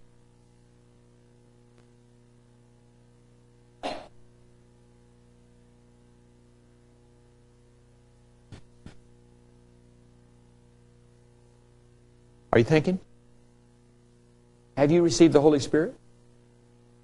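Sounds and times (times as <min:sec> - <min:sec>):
low electrical hum: 0:00.0 - 0:17.0
person coughing: 0:03.8 - 0:04.2.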